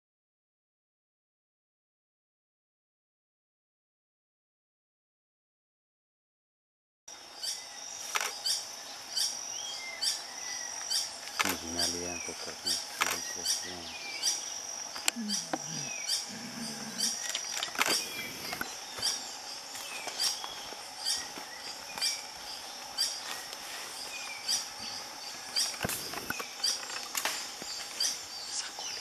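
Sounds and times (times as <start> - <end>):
high insect hum: 7.1 - 29.0.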